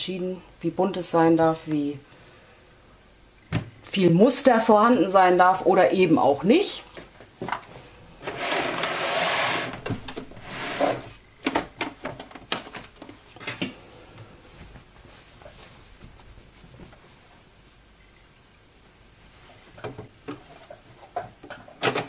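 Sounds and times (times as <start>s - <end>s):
fabric rustling: 14.4s - 19.8s.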